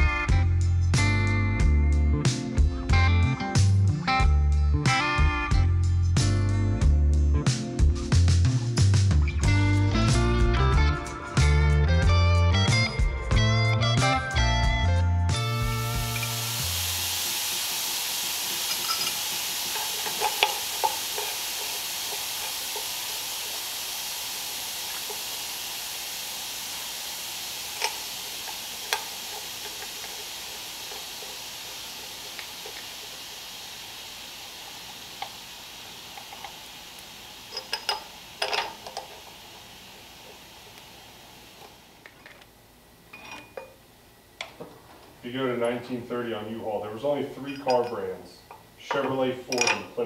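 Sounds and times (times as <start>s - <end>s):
steady hiss: 0.0s - 50.0s
light clicks and clinks: 47.5s - 49.9s.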